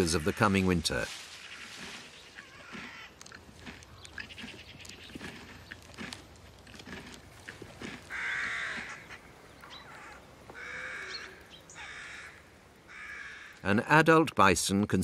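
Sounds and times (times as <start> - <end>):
bird giving harsh caws: 1.4 - 3.2, 8.1 - 13.7.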